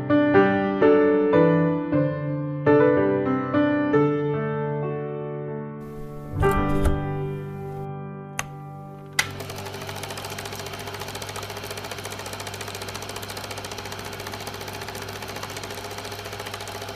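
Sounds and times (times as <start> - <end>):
piano music: 0.0 - 9.5
click: 8.4 - 9.4
small machine chattering: 9.3 - 16.9.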